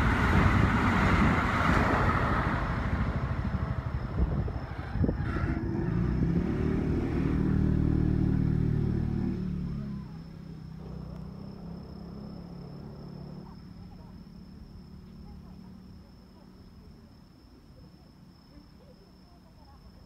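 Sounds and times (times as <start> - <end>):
electric train rumbling past: 0.0 - 14.9.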